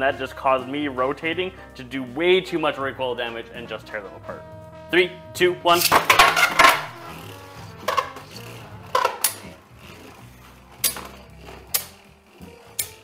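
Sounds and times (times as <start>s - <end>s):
spinning tops clattering: 5.7s - 13.0s
spinning tops clicking: 5.8s - 13.0s.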